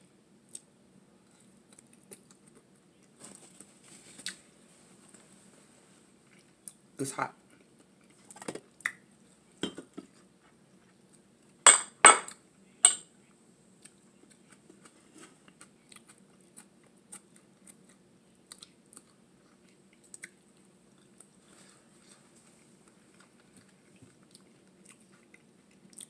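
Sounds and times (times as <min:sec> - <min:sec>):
soft chewing: 0:00.4 - 0:11.6, 0:13.2 - 0:26.0
tableware clinking: 0:11.7 - 0:13.1.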